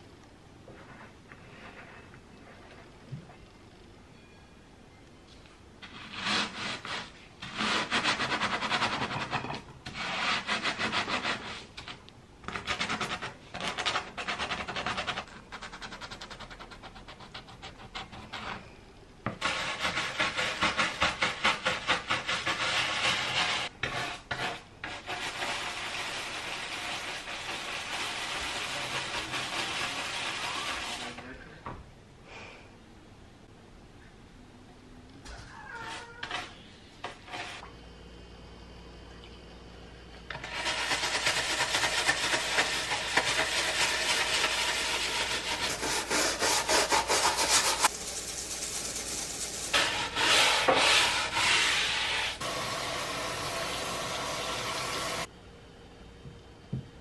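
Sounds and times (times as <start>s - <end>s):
gritty scraping on cutting board: 5.8s - 15.3s, 19.3s - 31.2s, 35.8s - 37.6s, 40.3s - 52.4s
scrub brush scrubbing: 19.4s - 31.2s, 40.4s - 52.4s.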